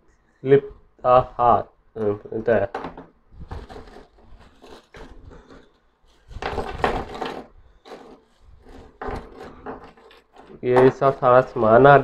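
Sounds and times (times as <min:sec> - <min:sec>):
bubble wrap rustling: 0:03.4 - 0:12.0.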